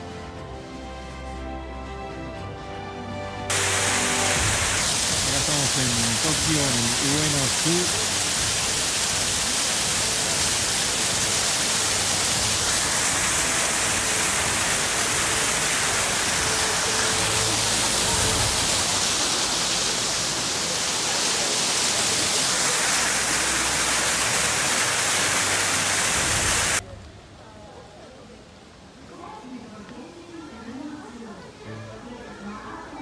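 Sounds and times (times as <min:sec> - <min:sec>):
falling water rushing: 0:03.5 - 0:26.8.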